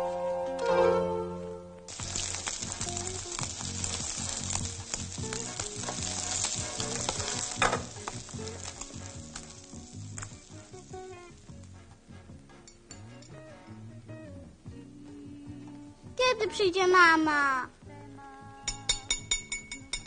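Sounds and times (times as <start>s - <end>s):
soft background music: 0.0s - 20.0s
food sizzling in frying pan: 1.9s - 13.2s.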